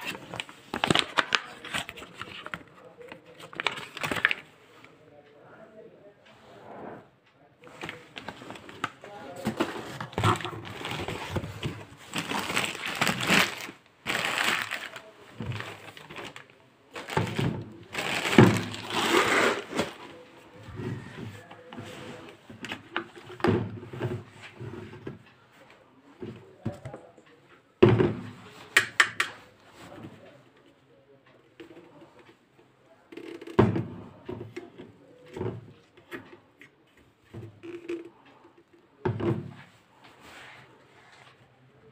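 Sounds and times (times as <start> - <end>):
cardboard and plastic rustling: 0.0 - 4.6, 7.7 - 25.3.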